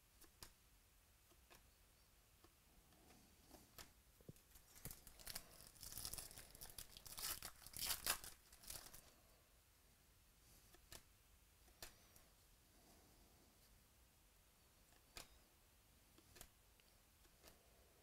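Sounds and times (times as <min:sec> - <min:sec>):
wrapper crinkling and tearing: 0:04.5 - 0:09.0.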